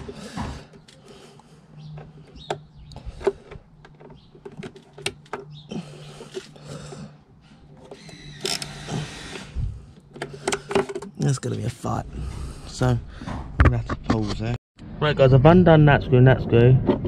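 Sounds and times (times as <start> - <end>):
screwdriver clicking on screws: 7.8 - 9.5.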